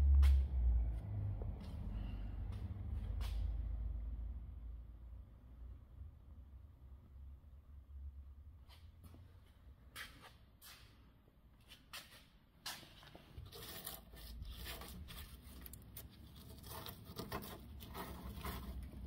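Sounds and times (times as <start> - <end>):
gloved hand scraping debris: 12.7 - 19.0.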